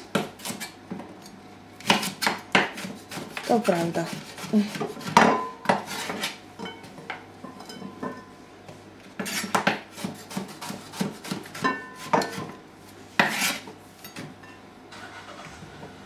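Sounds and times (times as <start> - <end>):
scrape on chopping board: 2.7 - 5.2, 5.8 - 6.4, 9.2 - 13.8
kitchenware clinking: 6.6 - 8.3.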